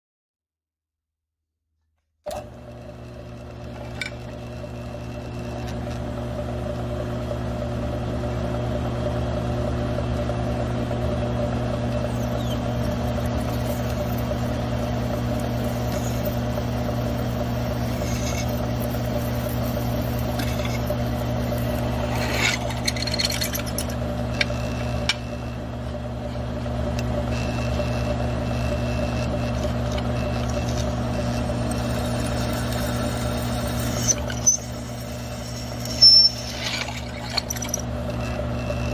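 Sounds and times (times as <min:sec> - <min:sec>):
drill motor humming: 0:02.3 - 0:08.6, 0:10.2 - 0:38.9
drill scraping metal: 0:11.9 - 0:38.9.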